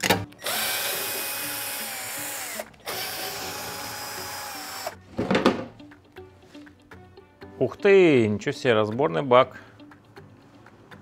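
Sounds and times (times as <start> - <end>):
cordless screwdriver running: 0.4 - 5.0.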